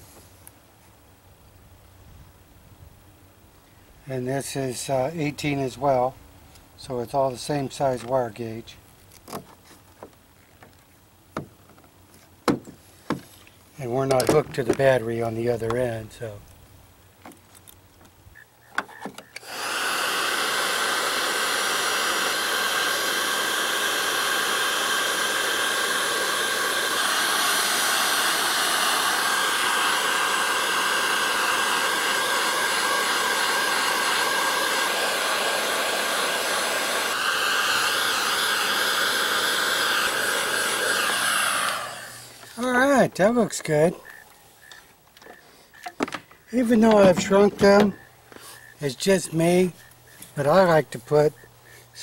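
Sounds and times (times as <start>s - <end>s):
heat gun fan blowing: 4.1s - 8.8s, 12.5s - 16.5s, 19.3s - 44.0s, 46.5s - 52.0s.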